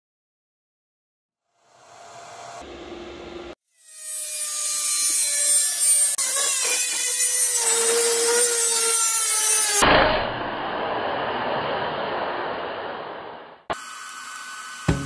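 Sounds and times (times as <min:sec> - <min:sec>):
angle grinder cutting metal: 0:01.9 - 0:12.7.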